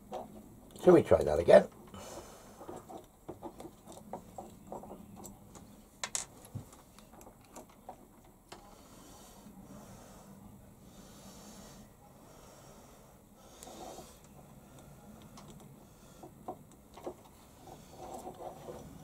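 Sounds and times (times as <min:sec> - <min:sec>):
metal parts clicking and scraping: 0:16.6 - 0:19.0.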